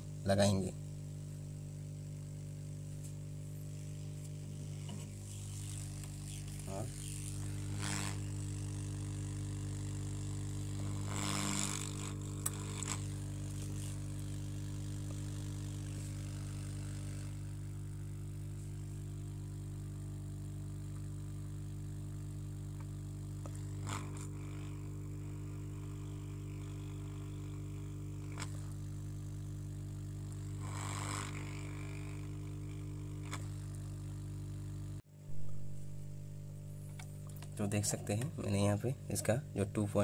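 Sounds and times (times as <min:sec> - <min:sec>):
low hum: 0:00.0 - 0:40.0
hot air gun blowing: 0:03.7 - 0:20.0, 0:23.1 - 0:34.1.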